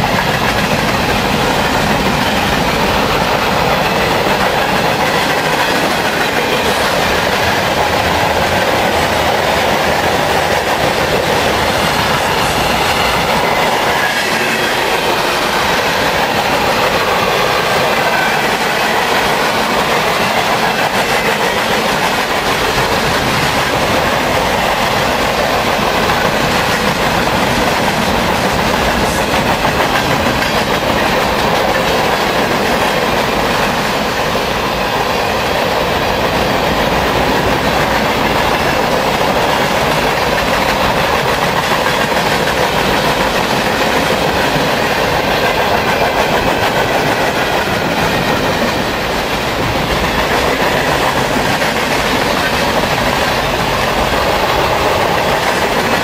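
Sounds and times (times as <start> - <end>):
freight train cars rolling past: 0.0 - 56.0
steel wheels on rails: 0.0 - 56.0.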